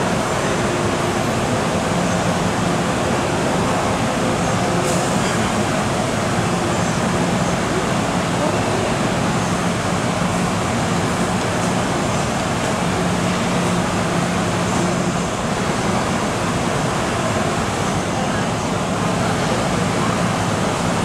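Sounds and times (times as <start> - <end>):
train equipment hum and hiss: 0.0 - 21.0.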